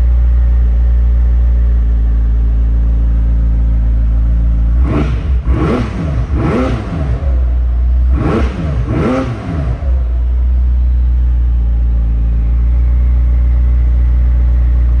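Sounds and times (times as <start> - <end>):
car engine idling: 0.0 - 15.0
car engine revving: 4.3 - 14.1.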